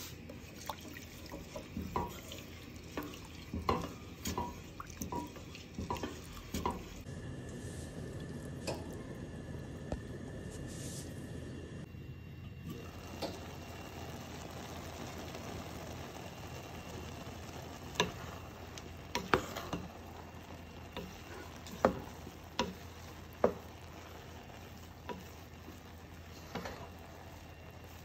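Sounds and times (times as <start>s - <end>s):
spoon stirring rice: 0.0s - 7.1s, 17.8s - 28.0s.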